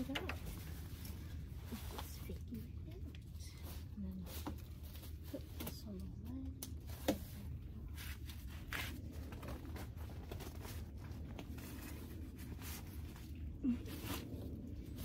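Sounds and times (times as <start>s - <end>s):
steady low hum: 0.0s - 15.0s
tent material rustling: 6.8s - 15.0s.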